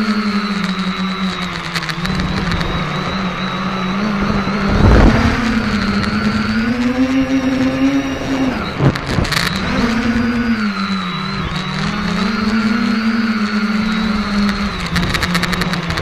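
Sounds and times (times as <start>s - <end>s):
quadcopter propellers whining: 0.0s - 16.0s
wind rush on microphone: 1.4s - 10.6s, 14.0s - 16.0s.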